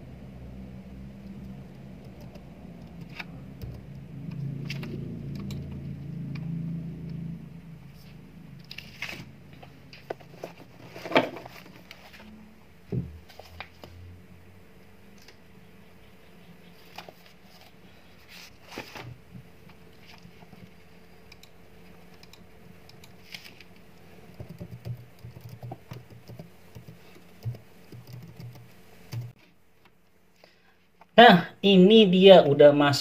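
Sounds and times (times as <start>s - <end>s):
faint steady hum: 0.0s - 33.0s
paper rustling: 8.0s - 12.3s, 16.8s - 19.2s, 23.2s - 23.7s
typing on computer keyboard: 24.3s - 29.4s.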